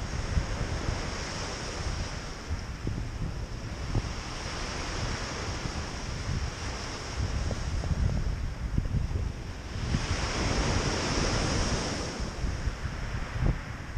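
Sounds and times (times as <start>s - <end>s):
wind buffeting microphone: 0.0s - 13.9s
waves washing up pebble beach: 9.2s - 13.9s.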